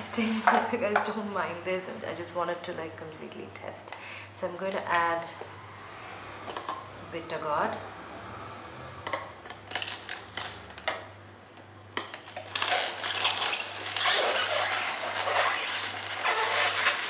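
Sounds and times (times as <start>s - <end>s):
juicer crunching vegetable: 8.7s - 11.1s, 12.0s - 17.0s.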